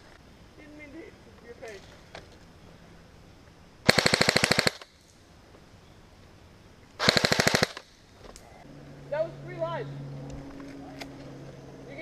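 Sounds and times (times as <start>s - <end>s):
airsoft rifle full-auto burst: 3.8s - 4.9s, 7.0s - 7.9s.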